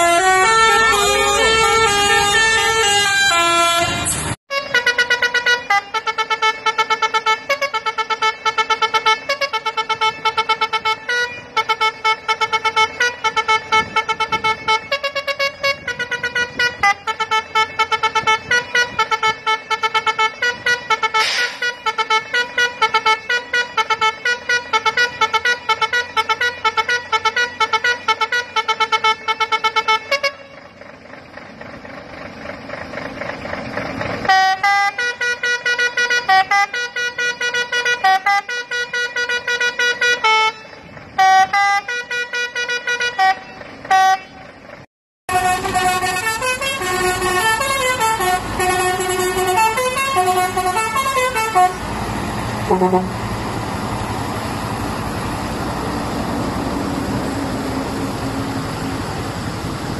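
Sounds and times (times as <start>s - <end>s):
musical truck horn playing tune: 0.0s - 30.8s, 34.2s - 44.6s, 45.3s - 54.3s
rising hiss: 21.2s - 21.6s.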